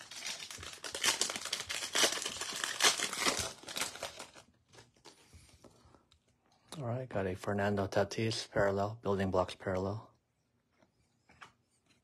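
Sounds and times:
wrapper tearing and crinkling: 0.0 - 5.1.

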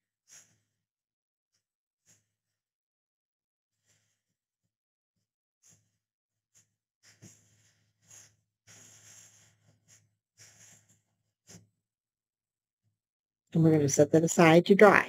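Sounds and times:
air puffs through straw: 7.0 - 9.7.

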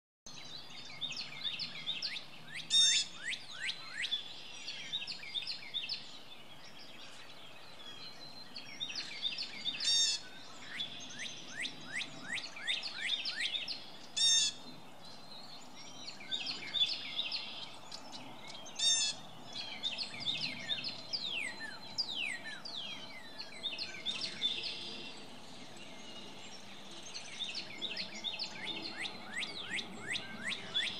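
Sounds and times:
loud harsh bird call: 9.8 - 10.3, 14.2 - 14.6, 18.8 - 19.2
mockingbird singing whistled notes: 25.8 - 30.9.

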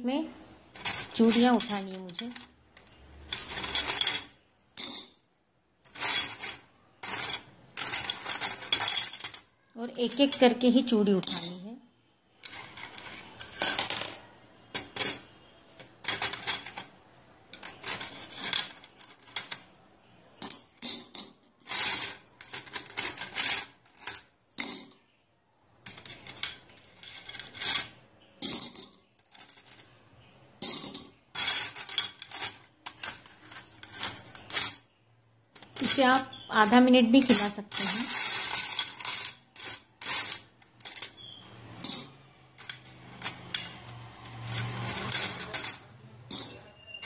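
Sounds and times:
bangles clinking on steel plate: 0.8 - 5.2, 5.9 - 11.7, 12.4 - 19.7, 25.8 - 30.0, 30.6 - 35.0, 35.6 - 47.0.

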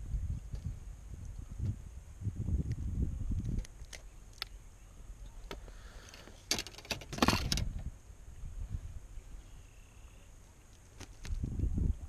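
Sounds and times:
fishing gear clicks and rattles: 5.5 - 7.8.

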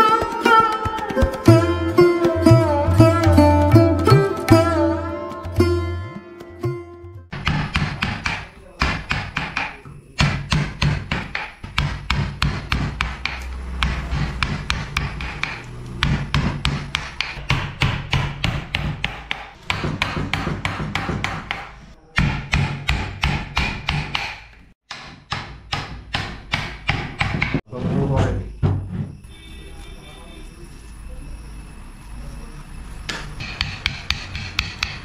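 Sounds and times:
mallet striking chisel: 7.3 - 27.6, 33.1 - 35.0.

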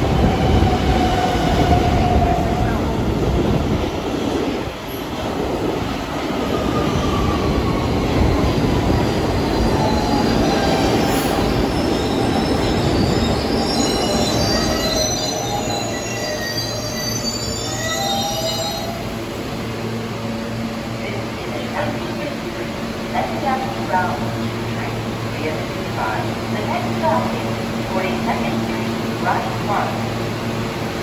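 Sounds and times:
subway train rumble and whine: 0.0 - 31.0
steel wheel squeal: 11.7 - 19.0.

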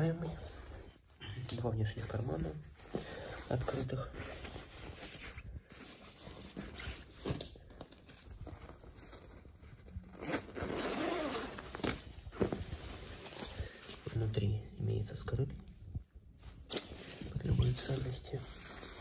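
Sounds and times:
nylon jacket rustling: 0.0 - 14.3, 16.4 - 19.0
zipper being pulled open: 9.9 - 12.1.

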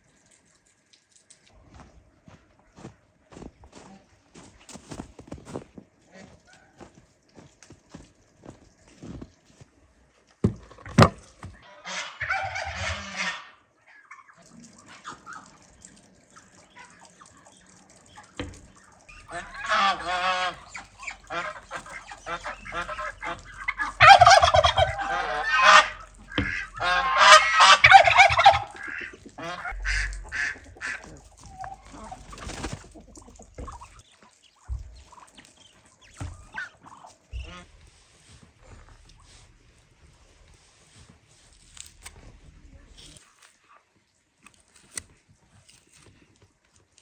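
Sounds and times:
poultry calling: 11.5 - 39.6.

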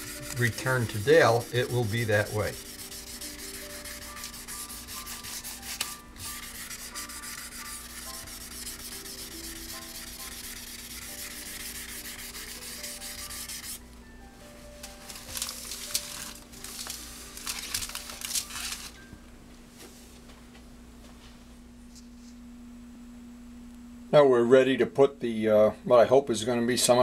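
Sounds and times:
sandpaper rubbing by hand: 0.0 - 13.8.

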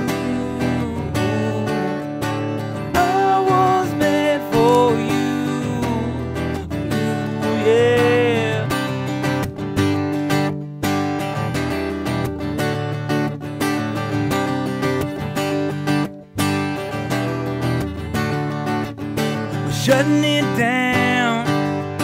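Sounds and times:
bending melody line: 0.0 - 12.4
acoustic guitar strumming: 0.0 - 22.0.

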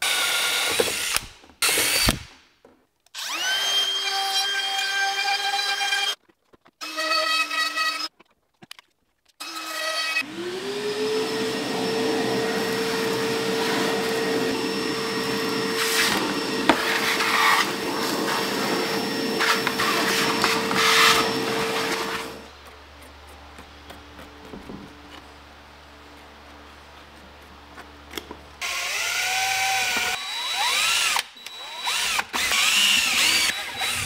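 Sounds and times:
electric motor whine: 10.2 - 22.5, 28.6 - 34.0.

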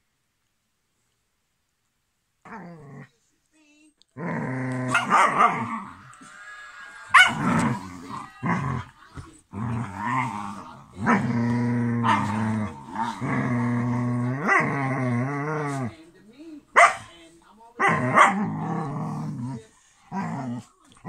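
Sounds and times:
dog growling: 2.4 - 3.1, 4.1 - 16.0, 17.8 - 21.0.

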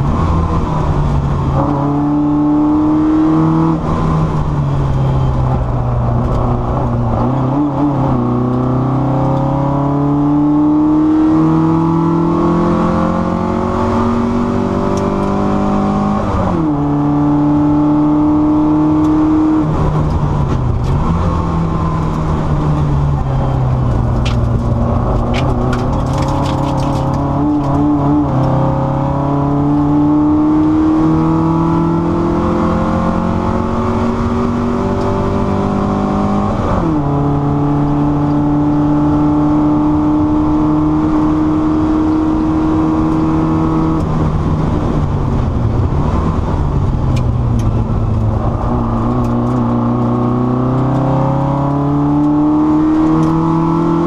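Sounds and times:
car engine revving: 0.0 - 54.0
road and wind noise: 0.0 - 54.0.

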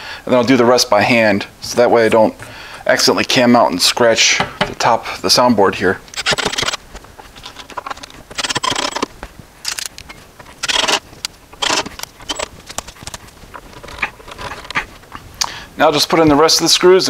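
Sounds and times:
cordless drill driving screws: 10.6 - 11.0, 11.6 - 12.5.

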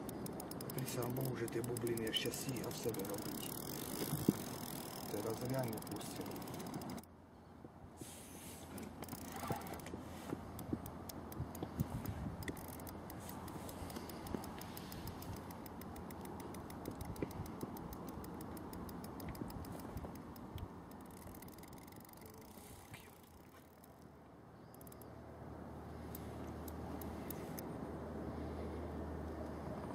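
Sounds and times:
fishing reel clicking rapidly: 0.0 - 7.1, 9.0 - 9.9, 10.5 - 24.0, 24.7 - 25.1.

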